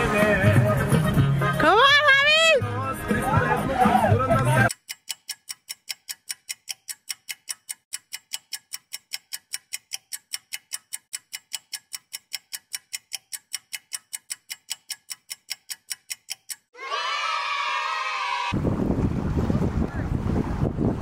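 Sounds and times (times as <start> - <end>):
clock ticking fast: 4.7 - 16.8.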